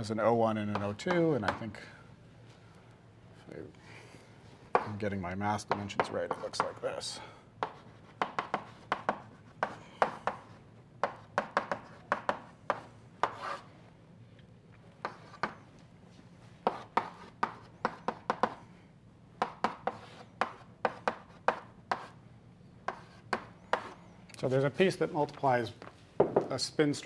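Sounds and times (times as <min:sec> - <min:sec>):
chalk on blackboard: 0:05.7 - 0:06.8, 0:07.6 - 0:13.7, 0:15.0 - 0:15.6, 0:16.6 - 0:18.6, 0:19.4 - 0:22.2, 0:22.9 - 0:24.0.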